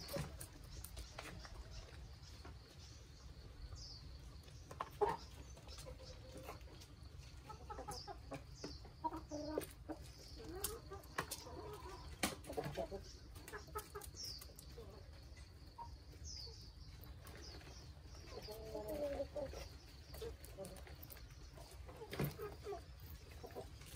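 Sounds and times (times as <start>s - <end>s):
chickens clucking: 0.0s - 23.9s
beaks pecking at food: 16.7s - 23.9s.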